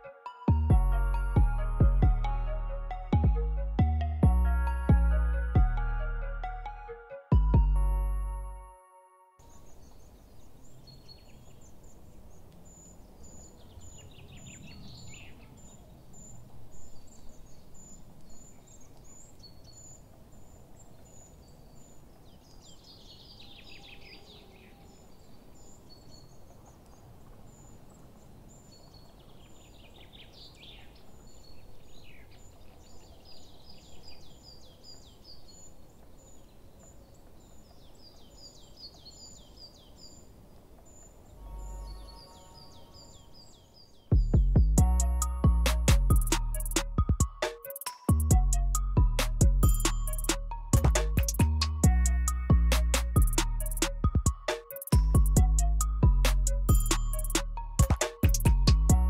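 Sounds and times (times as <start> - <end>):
bird descending trill: 41.4 - 43.6.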